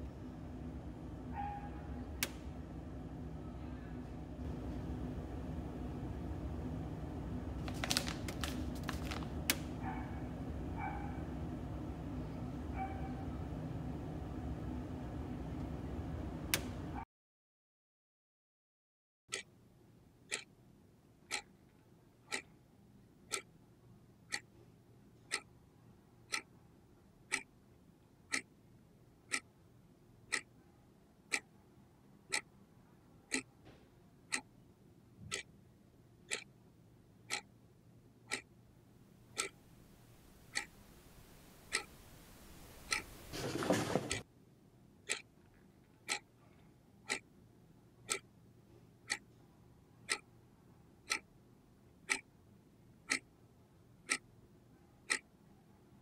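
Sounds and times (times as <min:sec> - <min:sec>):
clock ticking: 0:20.3 - 0:20.5, 0:21.3 - 0:21.5, 0:22.3 - 0:22.5, 0:23.3 - 0:23.5, 0:24.3 - 0:24.5, 0:25.2 - 0:25.5, 0:26.3 - 0:26.5, 0:27.2 - 0:27.5, 0:28.3 - 0:28.5, 0:29.3 - 0:29.5, 0:30.3 - 0:30.5, 0:32.3 - 0:32.5, 0:33.3 - 0:33.5, 0:34.3 - 0:34.5, 0:35.3 - 0:35.5, 0:36.2 - 0:36.5, 0:37.2 - 0:37.5, 0:38.2 - 0:38.5, 0:39.3 - 0:39.6, 0:40.4 - 0:40.8, 0:41.4 - 0:43.2, 0:45.0 - 0:45.3, 0:46.1 - 0:46.3, 0:47.0 - 0:47.2, 0:48.0 - 0:48.3, 0:49.0 - 0:49.2, 0:50.0 - 0:50.3, 0:51.0 - 0:51.3, 0:52.0 - 0:52.3, 0:53.0 - 0:53.3, 0:54.0 - 0:54.3, 0:55.0 - 0:55.3.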